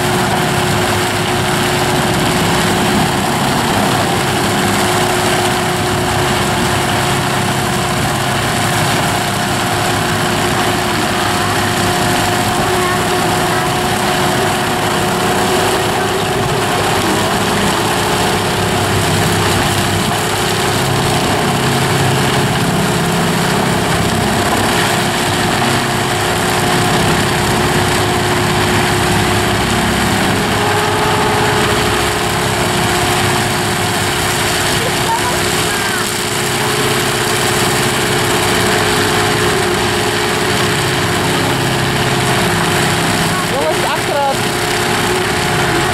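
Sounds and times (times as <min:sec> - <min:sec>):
rotor grinding wood and earth: 0:00.0 - 0:45.9
steady whine: 0:00.0 - 0:45.9
tractor engine under load: 0:00.0 - 0:45.9.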